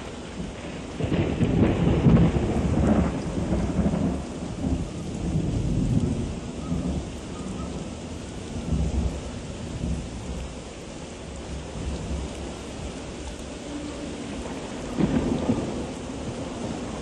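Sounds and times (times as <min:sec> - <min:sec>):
storm wind buffeting microphone: 0:00.0 - 0:10.6.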